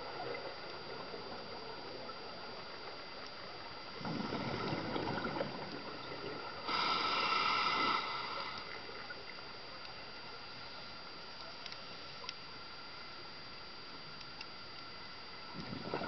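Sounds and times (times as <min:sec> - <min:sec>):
exhaled bubbles burbling: 0:03.9 - 0:07.0, 0:15.5 - 0:16.0
regulator inhale hiss: 0:06.6 - 0:09.0.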